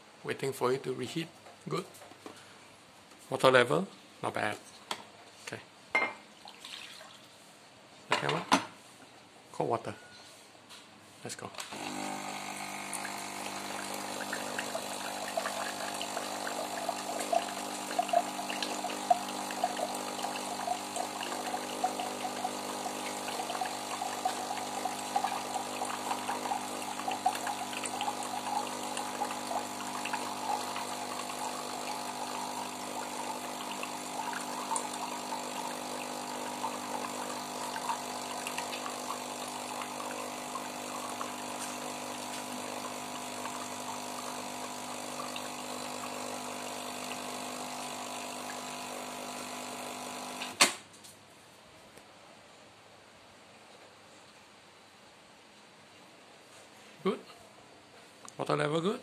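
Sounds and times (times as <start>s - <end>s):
coffee machine pump humming: 11.7s - 50.6s
water stream splashing into glass: 12.8s - 41.4s.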